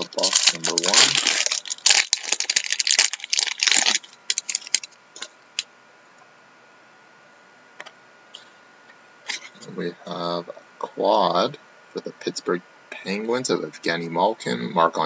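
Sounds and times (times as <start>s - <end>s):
foil wrapper tearing and crinkling: 0.0s - 5.3s.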